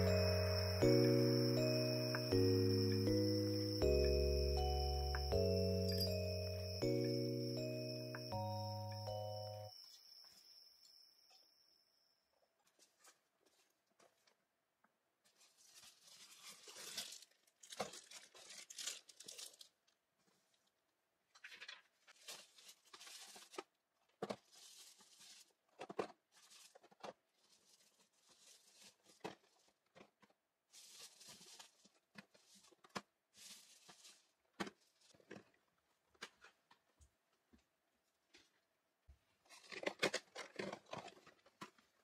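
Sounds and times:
packaging rustling and crinkling: 15.2s - 20.7s, 21.3s - 35.6s, 39.5s - 42.0s
cardboard boxes set on table: 21.4s - 36.9s.

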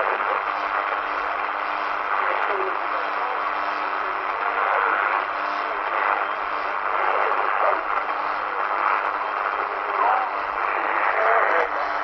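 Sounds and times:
faint voice on radio: 0.0s - 12.0s
radio static hiss: 0.0s - 12.0s.

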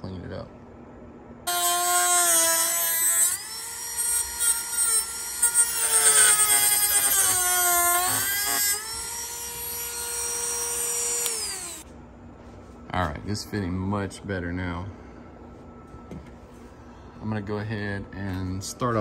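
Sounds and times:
rotary tool cutting plastic: 1.5s - 11.8s.

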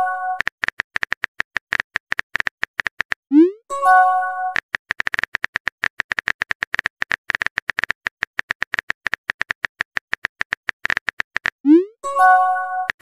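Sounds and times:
keyboard typing clicks: 4.5s - 13.0s.

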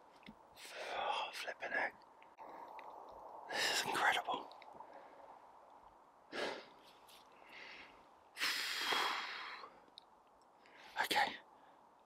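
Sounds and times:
person breathing: 0.6s - 1.3s, 4.8s - 5.6s, 6.3s - 9.9s, 10.6s - 12.0s.

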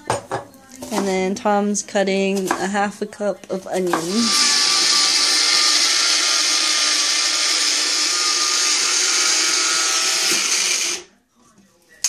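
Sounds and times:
blender whirring: 3.9s - 11.1s.

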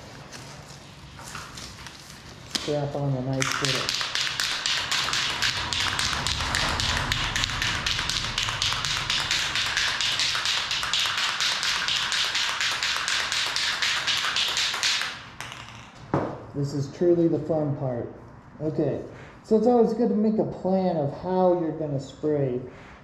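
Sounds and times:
spray can rattling while shaken: 3.4s - 15.8s.

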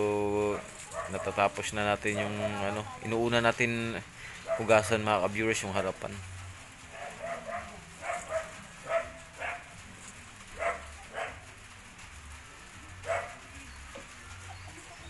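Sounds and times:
dog barking: 0.6s - 1.5s, 2.1s - 2.8s, 4.4s - 4.9s, 6.9s - 9.7s, 10.6s - 11.5s, 13.0s - 13.4s.

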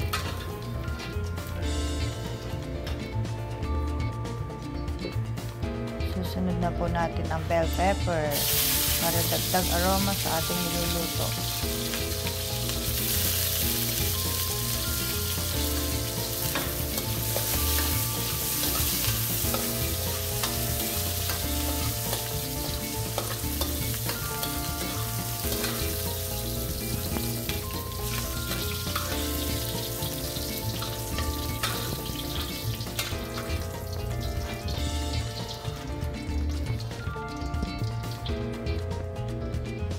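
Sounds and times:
pepper sizzling in hot oil: 7.9s - 37.1s.

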